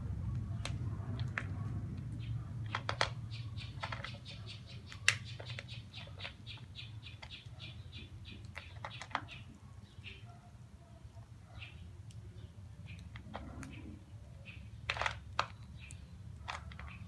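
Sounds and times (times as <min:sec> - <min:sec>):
bird pecking kibble in plastic bowl: 0:08.4 - 0:09.3, 0:14.8 - 0:15.7.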